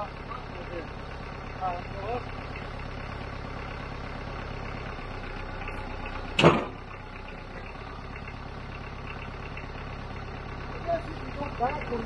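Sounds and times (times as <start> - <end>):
engine idling: 0.0 - 12.0
loud sharp knock: 6.4 - 6.8.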